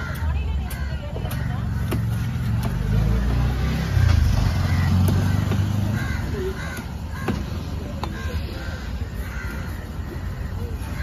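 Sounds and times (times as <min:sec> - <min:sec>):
crows cawing: 0:00.0 - 0:02.3, 0:03.8 - 0:11.0
vehicle engine rumbling: 0:00.0 - 0:11.0.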